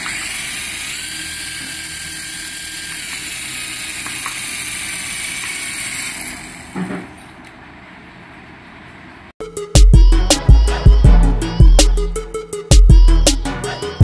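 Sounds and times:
toy helicopter motors whirring: 0.0 - 6.8.

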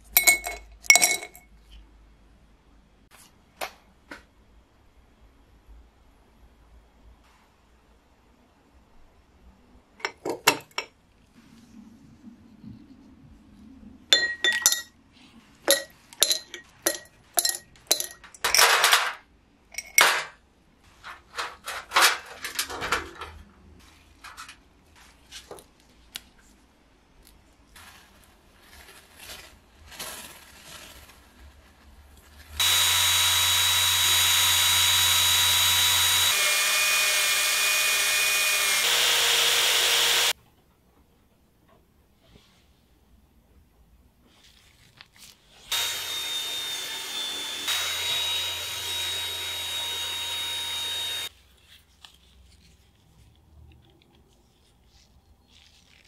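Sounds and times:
small metal parts clinking: 15.7 - 20.3
ultrasonic cleaner buzzing hum: 32.6 - 40.3, 45.7 - 51.3.

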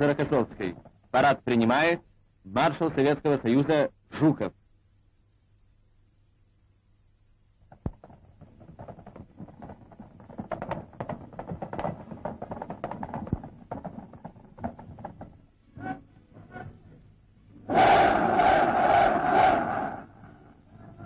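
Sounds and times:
clattering knocks: 7.7 - 15.5.

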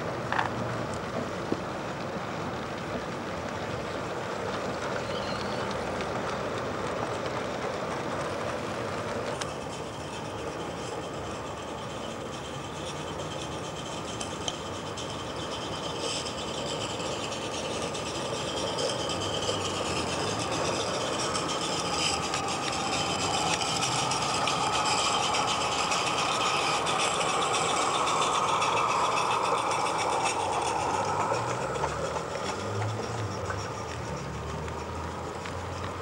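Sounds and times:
miniature steam locomotive hissing: 0.0 - 36.0
wheels rattling on track: 0.0 - 36.0.

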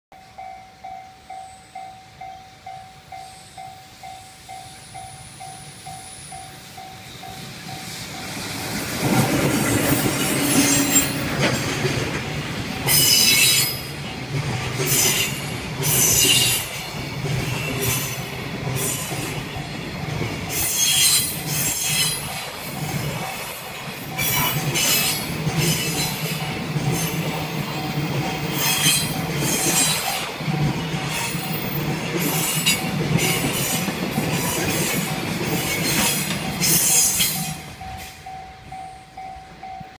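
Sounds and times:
train wagons rumbling over rail joints: 6.8 - 38.8
high metallic screeching: 9.8 - 11.3, 12.9 - 13.9, 20.5 - 22.4.

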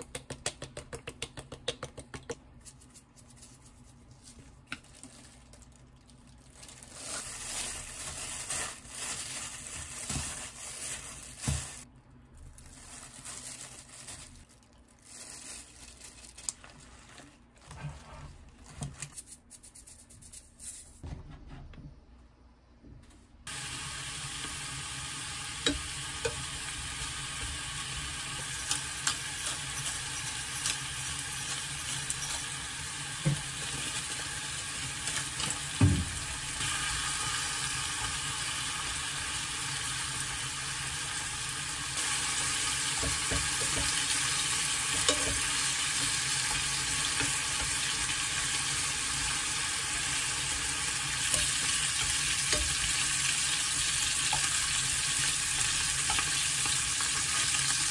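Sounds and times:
meat sizzling in a frying pan: 23.5 - 57.9.

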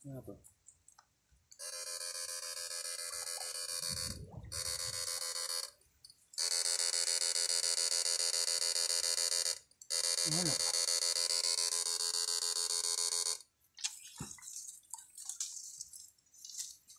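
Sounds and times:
electric shocker buzzing: 1.6 - 5.8, 6.4 - 13.4.

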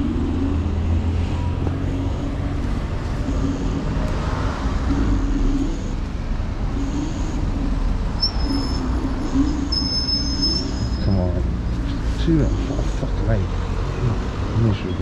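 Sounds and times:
high steady whine: 0.0 - 11.3
wind and tyres rumbling: 0.0 - 15.0.

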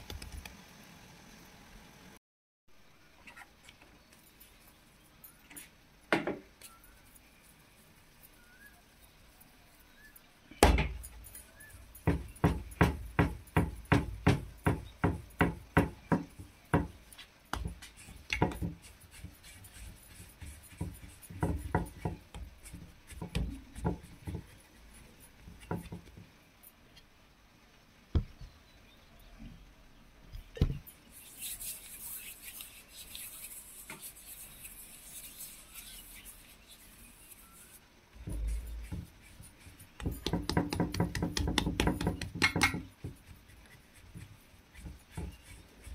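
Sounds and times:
dough kneaded on wooden counter: 10.5 - 26.4, 30.5 - 45.9.

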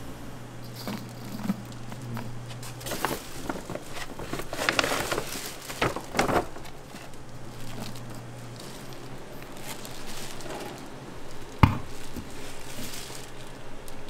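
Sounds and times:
scoop scraping: 0.6 - 5.8
paper sack rustling: 0.6 - 14.0.

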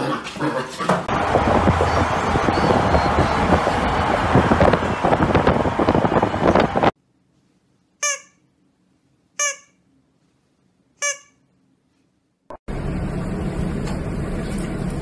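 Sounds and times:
wind and road noise: 1.1 - 7.0
squeaky toy squeaks: 8.0 - 8.4, 9.4 - 9.8, 11.0 - 11.4.

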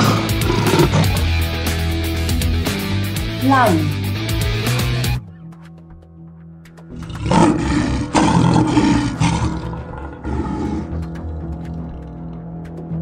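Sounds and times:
lion roaring: 0.0 - 1.4, 6.9 - 12.5
background music: 0.0 - 13.0.

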